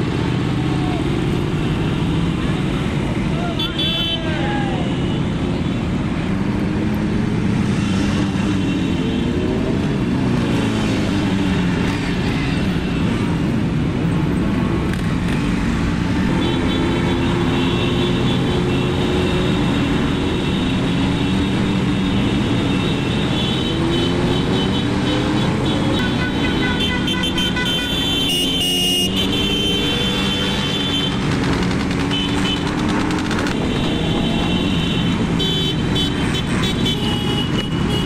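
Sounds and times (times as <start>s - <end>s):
other motorcycles: 0.0s - 38.0s
motorcycle engine running: 30.7s - 34.5s.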